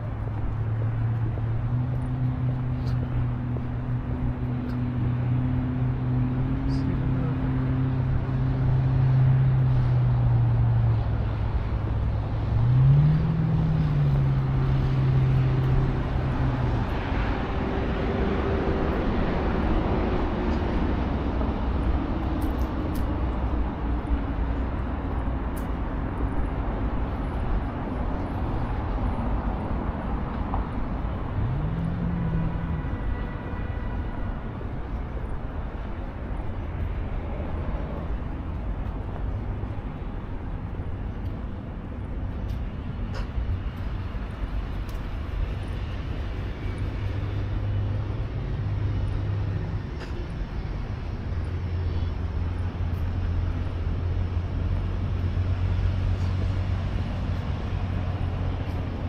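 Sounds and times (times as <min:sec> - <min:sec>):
rumble of road traffic: 0:00.0 - 0:59.0.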